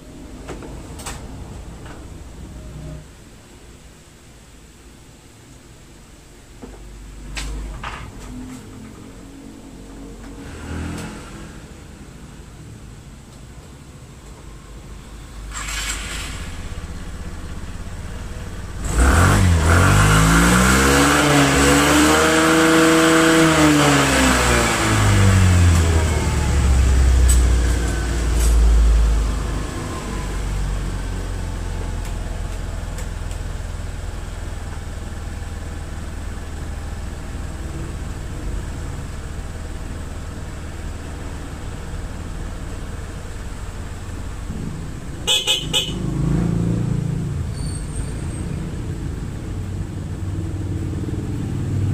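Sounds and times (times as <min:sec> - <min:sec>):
scooter engine starting and revving: 0:10.3 - 0:12.1, 0:15.4 - 0:28.3.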